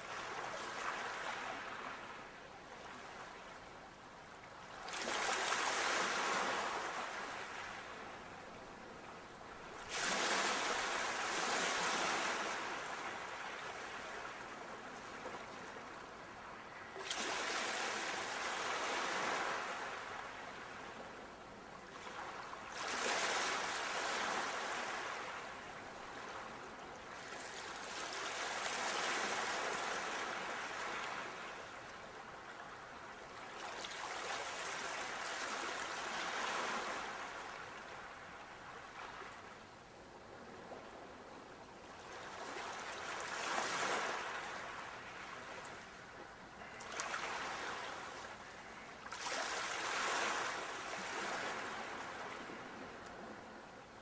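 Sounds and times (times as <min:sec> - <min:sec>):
ocean waves breaking: 0:09.7 - 0:15.9, 0:46.6 - 0:53.4.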